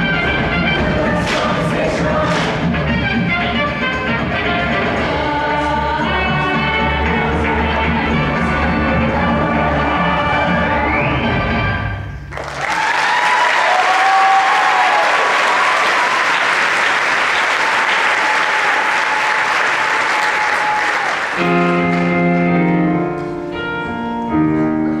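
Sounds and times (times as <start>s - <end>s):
people cheering: 12.3s - 21.7s
audience applauding: 12.3s - 22.3s
guitar playing chords: 21.4s - 25.0s.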